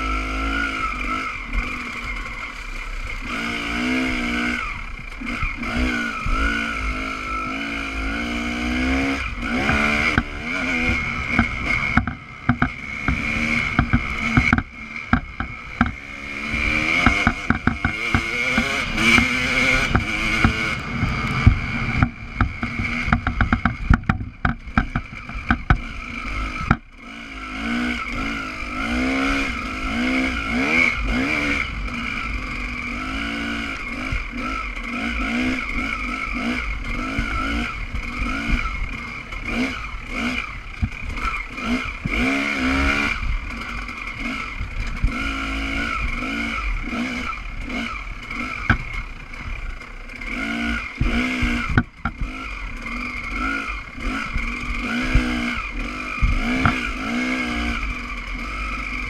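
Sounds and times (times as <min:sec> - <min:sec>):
motorcycle engine revving: 0:00.0 - 0:59.0
rapid knocks and clatter: 0:09.6 - 0:16.0, 0:17.0 - 0:25.9, 0:48.6 - 0:48.9, 0:51.0 - 0:52.4.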